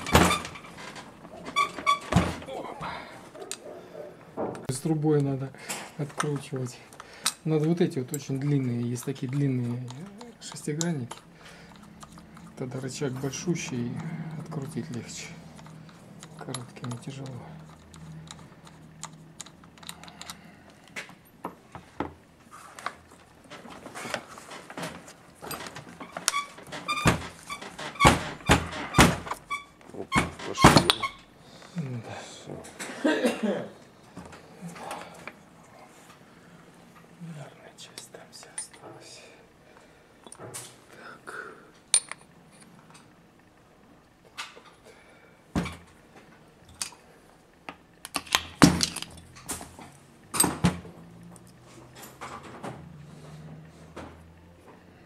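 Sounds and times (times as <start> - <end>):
metal parts knocking and clinking: 6.2 - 20.4, 41.9 - 42.7, 48.0 - 49.4.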